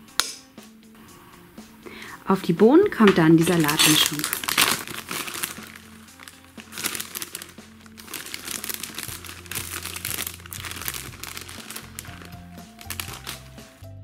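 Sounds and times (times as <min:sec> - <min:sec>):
light background music: 0:00.0 - 0:14.0
plastic bag crinkling: 0:03.1 - 0:13.8.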